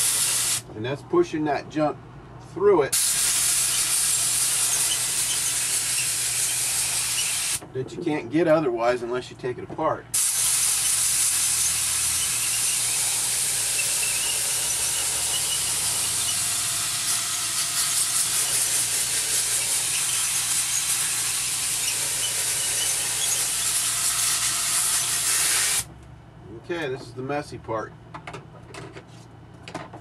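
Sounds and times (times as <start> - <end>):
compressed air hissing: 0.0 - 0.6, 2.9 - 7.6, 10.2 - 25.9.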